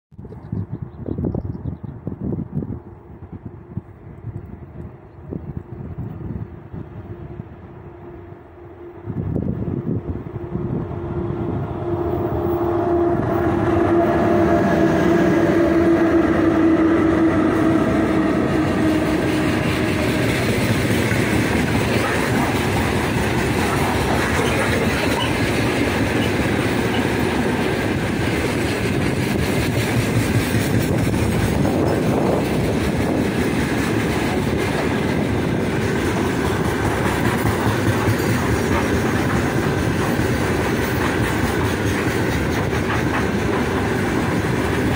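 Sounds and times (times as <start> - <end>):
electric locomotive hum: 0.3 - 44.9
freight wagons rumbling past: 10.4 - 44.9.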